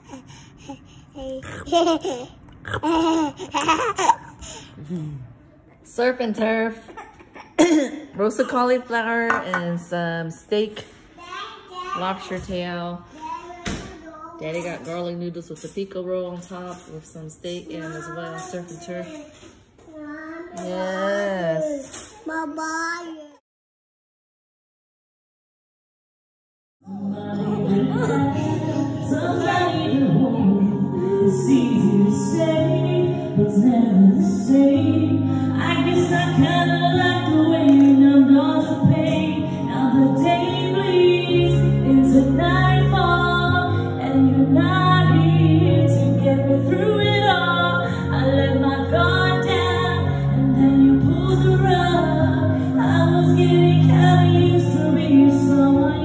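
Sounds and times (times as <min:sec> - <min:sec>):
woman singing karaoke: 0:20.6 - 0:21.8, 0:26.8 - 0:56.0
music backing track: 0:26.9 - 0:56.0.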